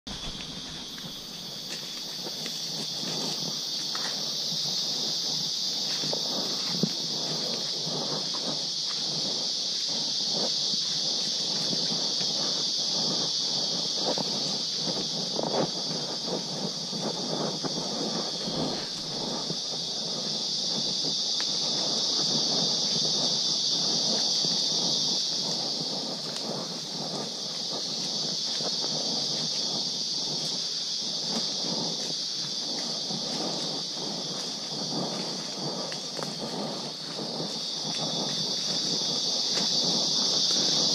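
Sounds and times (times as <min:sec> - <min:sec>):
footsteps crunching through leaves: 0:00.0 - 0:13.4, 0:18.3 - 0:23.0, 0:27.2 - 0:40.9
insect chorus drone: 0:00.0 - 0:40.9.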